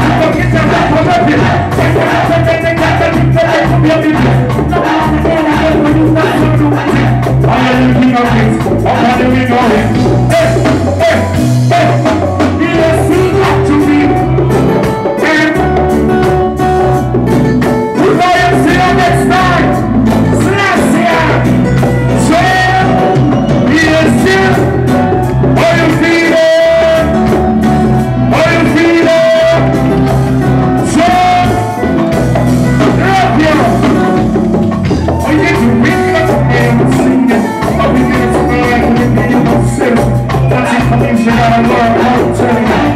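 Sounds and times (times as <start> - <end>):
person singing into a microphone: 0.0 - 16.7, 17.8 - 42.9
heavy bass line: 0.0 - 42.9
reggae band playing: 0.0 - 42.9.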